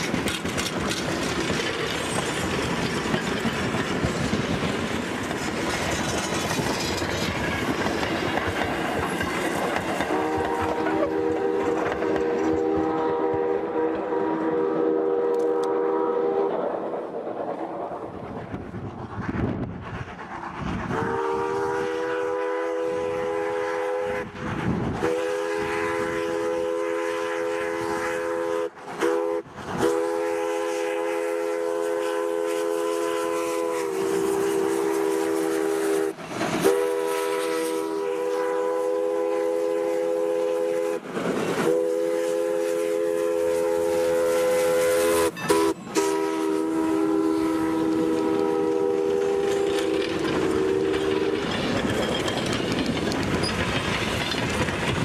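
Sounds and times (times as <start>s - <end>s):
rail noise: 0.0s - 55.0s
rushing steam: 0.0s - 55.0s
steam locomotive chime whistle: 10.0s - 16.5s, 21.0s - 24.4s, 25.0s - 41.0s, 41.6s - 52.3s.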